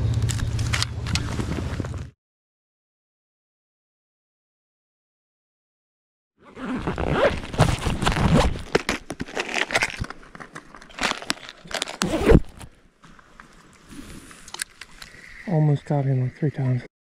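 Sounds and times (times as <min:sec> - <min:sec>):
clothing rubbing on camera: 0:06.4 - 0:10.0, 0:10.8 - 0:12.7
lures rattling in plastic box: 0:08.6 - 0:12.6.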